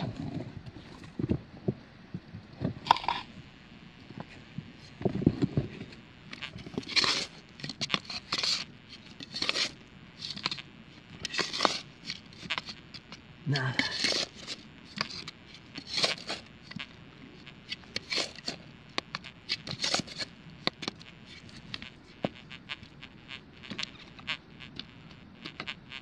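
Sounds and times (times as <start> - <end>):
shovel digging and scraping: 6.8 - 8.6, 9.2 - 10.6, 11.2 - 12.7, 13.6 - 15.2, 15.8 - 16.4, 18.0 - 18.6.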